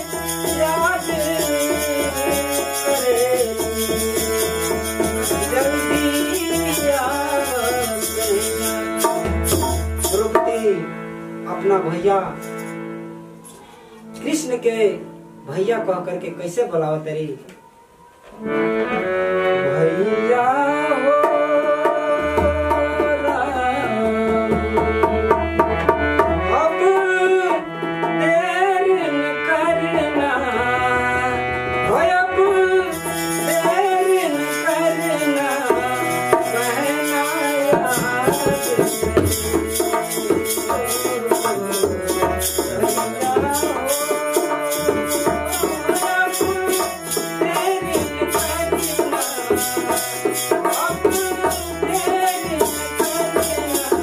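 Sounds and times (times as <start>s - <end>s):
dholak drumming: 0.0s - 10.9s, 21.1s - 28.8s, 31.9s - 54.0s
man singing: 0.0s - 12.4s, 19.6s - 54.0s
harmonium: 0.0s - 54.0s.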